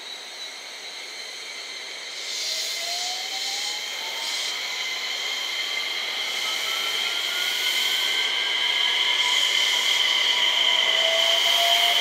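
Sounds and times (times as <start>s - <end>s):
electric train motor whine: 0.2s - 12.0s.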